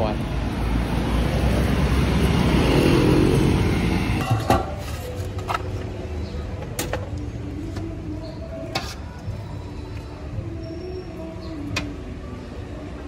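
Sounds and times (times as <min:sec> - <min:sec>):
passing motor vehicle: 0:00.0 - 0:04.3.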